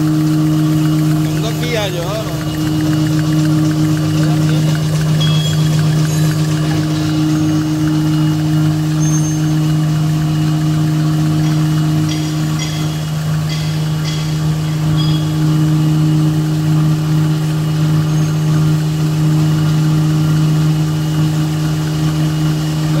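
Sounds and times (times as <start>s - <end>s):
paper machine humming: 0.0s - 23.0s.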